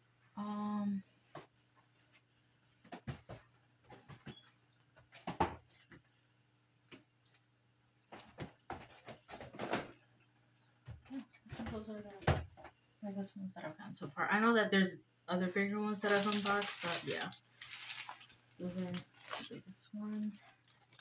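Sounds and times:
paper crinkling and rustling: 0:16.0 - 0:21.0.

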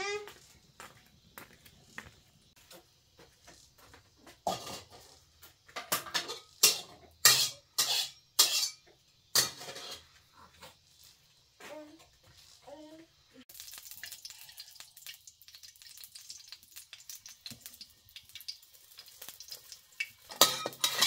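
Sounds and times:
metal pots clattering and scraping: 0:03.9 - 0:10.8, 0:18.8 - 0:21.0.

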